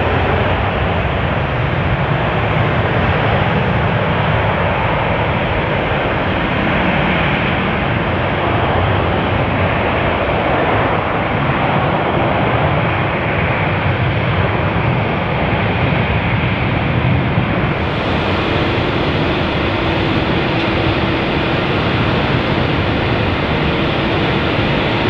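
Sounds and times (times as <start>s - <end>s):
jet engines rushing noise: 14.5s - 25.0s.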